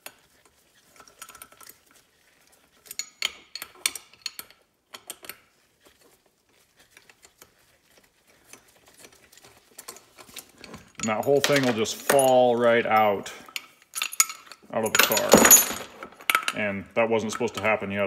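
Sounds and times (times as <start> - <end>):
small metal clicks and clinks: 9.8 - 16.6.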